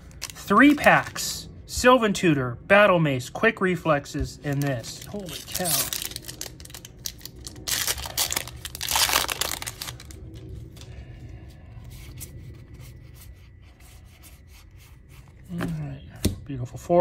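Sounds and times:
foil wrapper crinkling and tearing: 0.0s - 1.2s, 4.5s - 10.9s.

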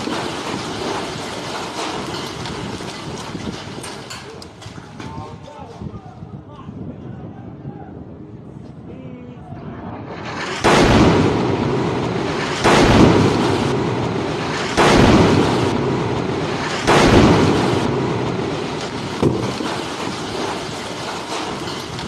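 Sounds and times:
explosions with rumbling roll-off: 0.0s - 5.2s, 9.8s - 22.0s.

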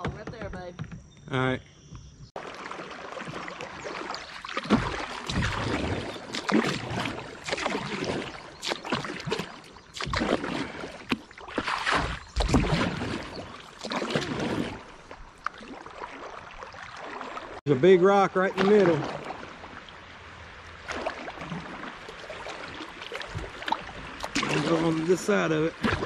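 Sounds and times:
paddle strokes splashing: 2.4s - 26.0s.

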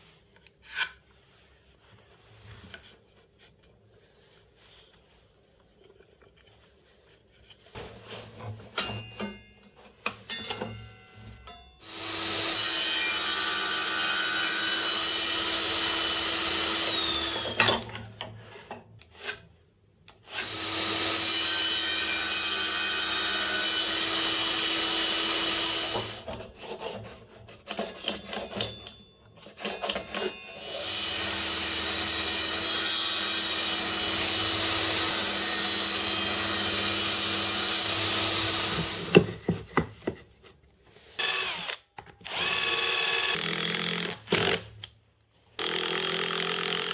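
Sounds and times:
table saw cutting plywood: 11.8s - 17.8s, 20.4s - 27.1s, 29.7s - 39.3s.

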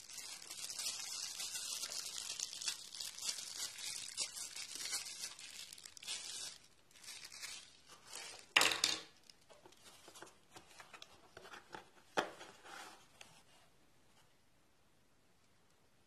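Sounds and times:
plastic wrapping crinkling: 0.0s - 12.5s.

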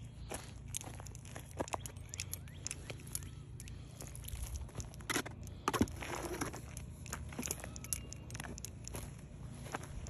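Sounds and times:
footsteps on stony dirt: 0.0s - 10.0s
low steady rumble: 0.0s - 10.0s.

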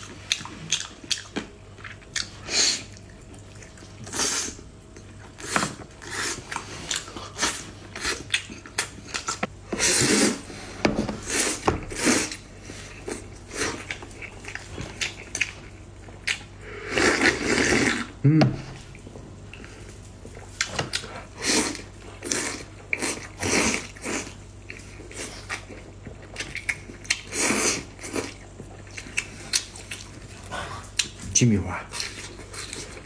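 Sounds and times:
wet chewing and biting: 0.0s - 9.5s, 11.3s - 18.1s, 19.0s - 31.2s.

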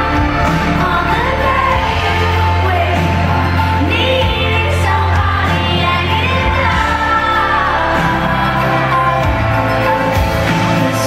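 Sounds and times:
woman singing: 0.0s - 9.8s.

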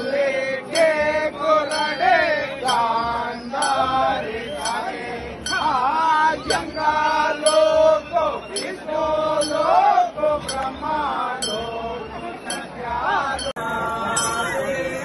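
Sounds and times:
men chanting: 0.0s - 15.0s
sharp metallic clink: 5.4s - 5.8s, 14.1s - 14.6s.

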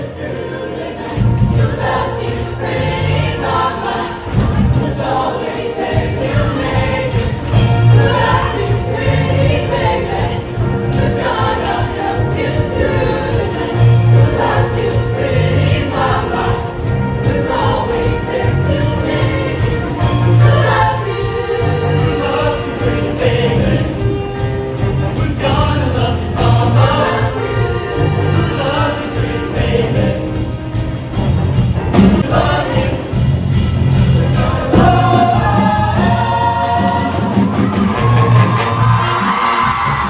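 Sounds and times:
instrumental accompaniment: 0.0s - 40.0s
show choir singing: 0.0s - 40.0s.

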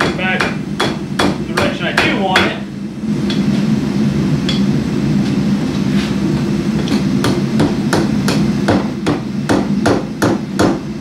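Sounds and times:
hammer striking metal on anvil: 0.0s - 2.6s, 3.3s - 3.5s, 4.4s - 4.7s, 6.8s - 10.9s.

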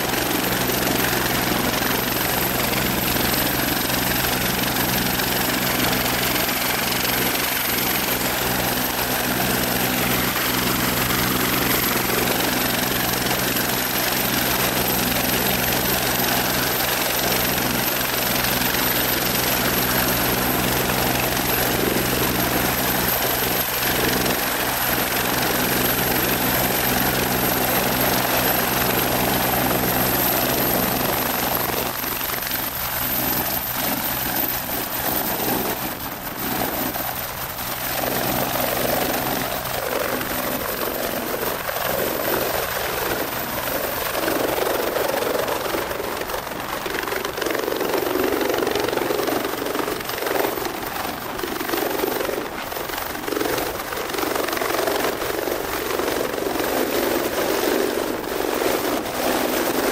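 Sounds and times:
helicopter engines and rotor: 0.0s - 59.9s.

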